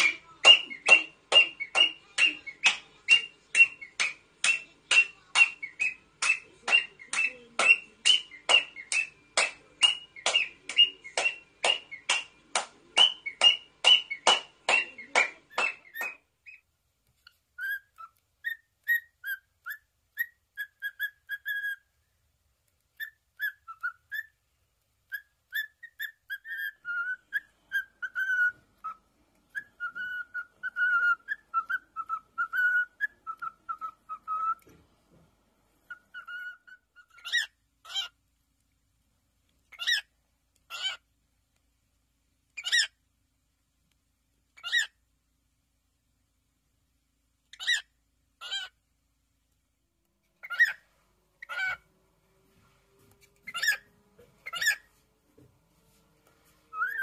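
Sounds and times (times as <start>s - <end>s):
cockatiel chirping: 0.0s - 22.1s, 22.7s - 24.4s, 25.0s - 34.7s, 35.8s - 38.2s, 39.7s - 41.1s, 42.5s - 43.0s, 44.6s - 45.0s, 47.5s - 48.8s, 50.4s - 51.9s, 53.1s - 55.0s, 56.7s - 57.0s
cockatiel whistled warbling: 17.6s - 21.8s, 23.0s - 24.4s, 25.1s - 34.6s, 35.9s - 38.1s, 53.5s - 54.9s, 56.7s - 57.0s.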